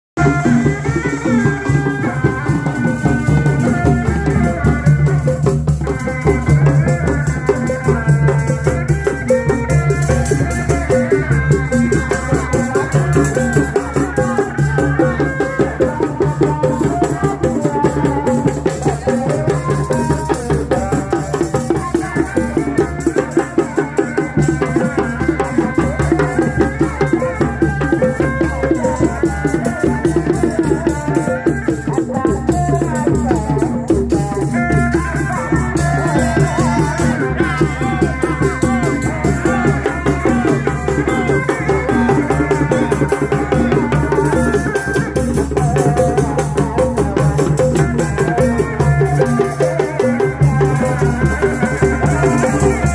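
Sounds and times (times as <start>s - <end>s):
double-reed pipe melody: 0.2s - 19.8s
clattering hand percussion: 0.2s - 52.9s
drums in fast rhythm: 0.2s - 52.9s.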